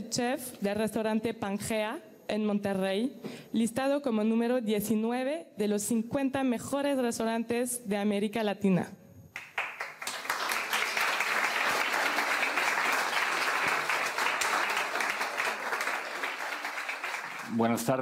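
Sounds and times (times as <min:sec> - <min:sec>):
audience applauding: 0:09.4 - 0:18.0.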